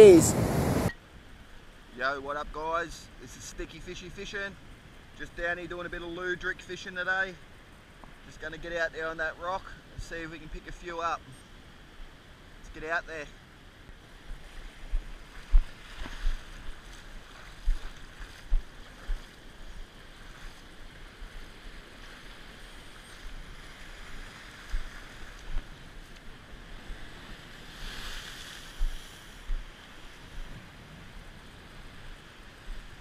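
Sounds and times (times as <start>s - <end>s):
ocean surf washing around rocks: 0.0s - 0.9s
low thumps on microphone: 14.9s - 16.4s.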